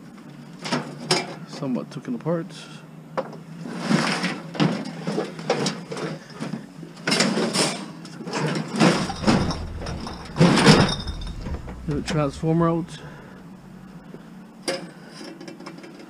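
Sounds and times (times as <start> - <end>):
scrap metal clattering and banging: 8.9 - 14.2.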